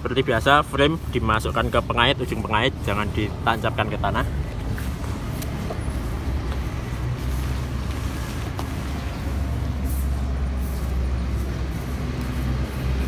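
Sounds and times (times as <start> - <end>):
tent pole clicks and rustles: 4.5 - 9.2.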